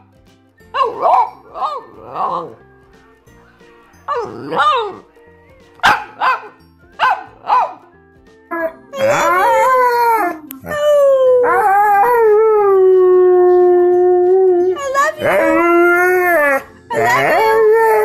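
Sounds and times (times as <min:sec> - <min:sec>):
dog howling: 0:08.5 - 0:18.0.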